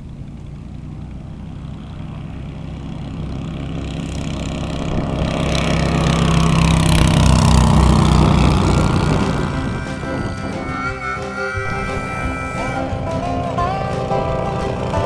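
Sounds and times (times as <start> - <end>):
light aircraft engine and propeller: 0.0 - 15.0.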